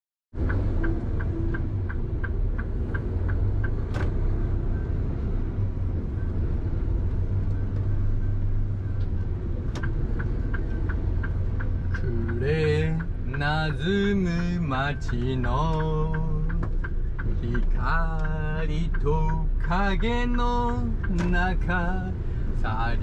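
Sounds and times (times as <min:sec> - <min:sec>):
road noise: 0:00.3 - 0:23.0
truck diesel engine rumbling: 0:00.3 - 0:23.0
turn signal ticking: 0:00.3 - 0:23.0
sharp clicks: 0:00.4 - 0:04.2, 0:09.0 - 0:22.0.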